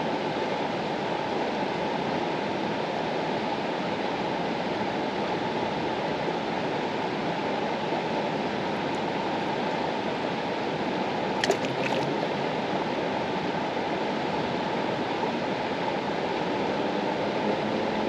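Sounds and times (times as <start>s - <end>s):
river water rushing: 8.5s - 14.2s.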